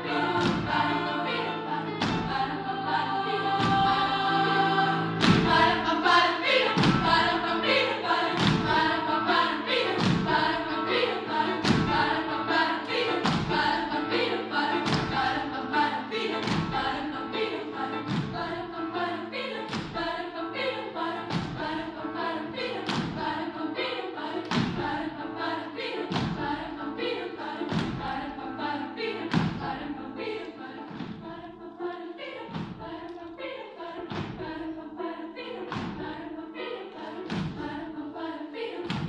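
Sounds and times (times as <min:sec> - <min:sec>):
children's choir singing: 0:00.0 - 0:39.0
regular thudding beat: 0:00.1 - 0:02.6, 0:03.4 - 0:04.3, 0:05.1 - 0:20.3, 0:21.0 - 0:28.4, 0:29.0 - 0:31.6, 0:32.4 - 0:33.3, 0:33.9 - 0:34.8, 0:35.7 - 0:36.4, 0:37.1 - 0:38.0.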